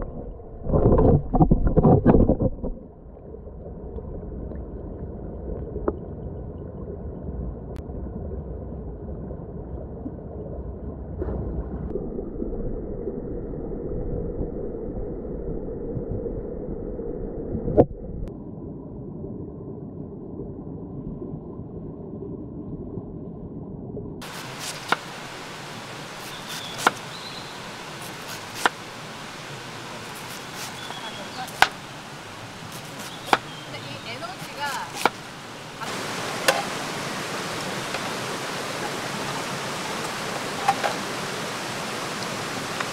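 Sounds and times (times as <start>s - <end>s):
muffled underwater stream rushing: 0.0s - 42.9s
knife chopping on wooden board: 26.2s - 27.0s, 28.0s - 28.8s, 32.7s - 33.6s, 34.7s - 35.2s.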